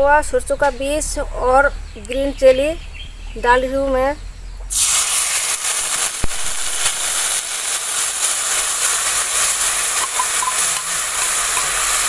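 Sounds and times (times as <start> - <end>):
paste sizzling in hot oil: 4.7 - 12.0.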